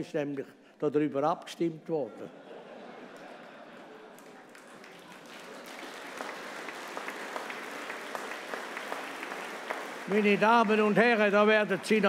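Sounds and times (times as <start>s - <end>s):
audience applauding: 4.1s - 12.0s.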